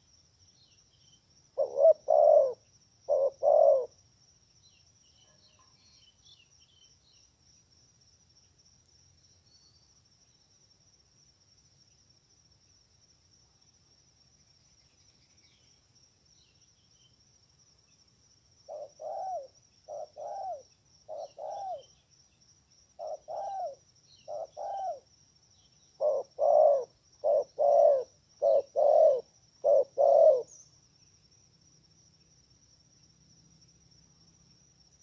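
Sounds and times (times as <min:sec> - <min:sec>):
dove cooing: 0:01.6 - 0:03.9, 0:18.7 - 0:21.9, 0:23.0 - 0:25.0, 0:26.0 - 0:30.6
high insect buzz: 0:06.2 - 0:35.0.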